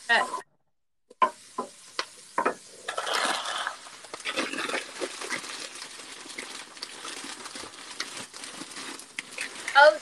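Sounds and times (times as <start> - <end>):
onion and garlic sizzling in oil: 0.0 - 0.4, 1.1 - 10.0
wooden spoon knocking against pan: 2.4 - 2.6
plastic bag rustling: 3.0 - 10.0.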